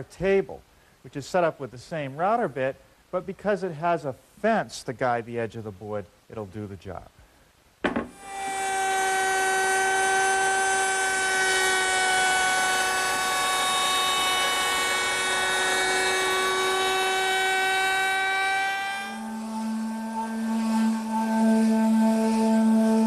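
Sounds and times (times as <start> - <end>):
router cutting wood with high whine: 8.0 - 23.0.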